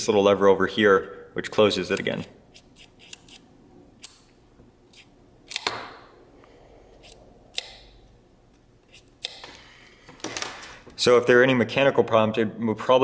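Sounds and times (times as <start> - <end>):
sharp metallic lens clicks: 1.9 - 4.3.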